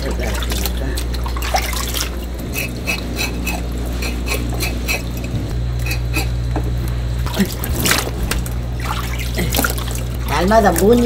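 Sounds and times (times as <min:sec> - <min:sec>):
water splash: 0:00.0 - 0:02.7, 0:07.3 - 0:11.0
steady low hum: 0:00.0 - 0:11.0
knife scraping fish scales: 0:02.4 - 0:06.4.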